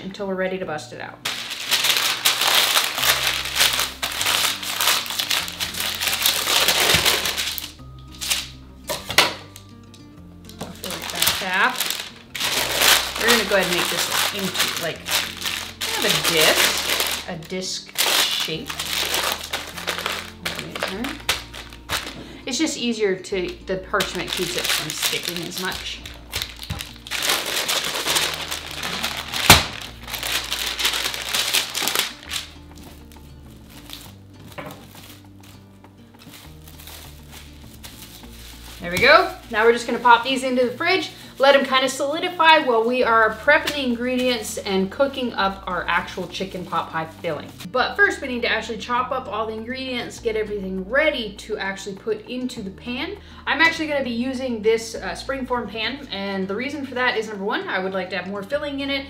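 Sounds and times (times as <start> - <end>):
soft background music: 0.0 - 59.0
parchment paper crinkling: 1.3 - 8.6, 10.5 - 22.3, 23.5 - 44.6.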